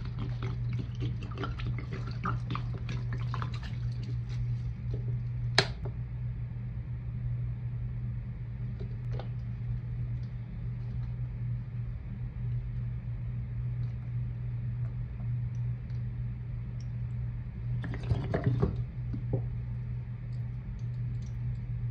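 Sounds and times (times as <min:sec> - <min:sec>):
water soaking into sponges: 0:00.0 - 0:05.8, 0:17.8 - 0:19.5
steady low hum: 0:00.0 - 0:21.9.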